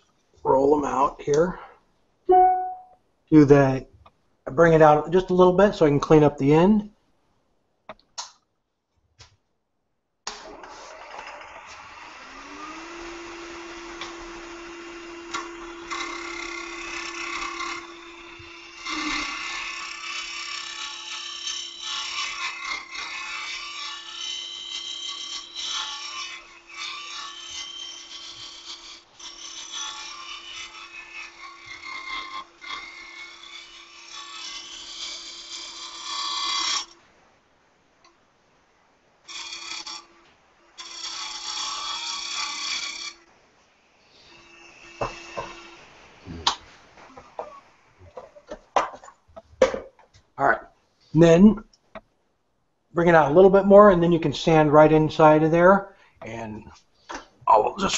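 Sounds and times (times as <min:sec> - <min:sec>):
wood lathe motor whine: 0:10.5 - 0:33.7, 0:44.2 - 0:46.5.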